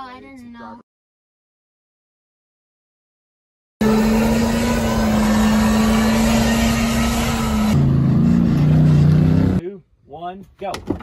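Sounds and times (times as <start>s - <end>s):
road and wind noise: 3.8s - 9.6s
vehicle engine running: 3.8s - 9.6s.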